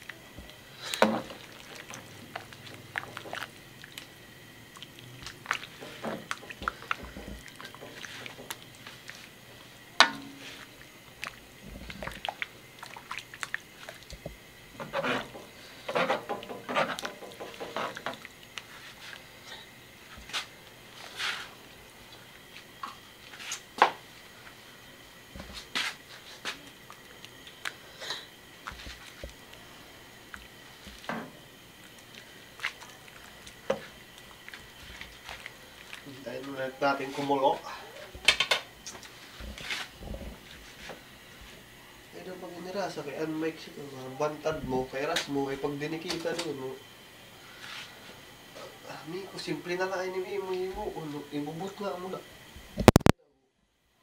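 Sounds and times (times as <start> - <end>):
broth sloshing: 0.0 - 38.2
ladle clinking and scraping wok: 10.0 - 10.5, 14.8 - 18.2.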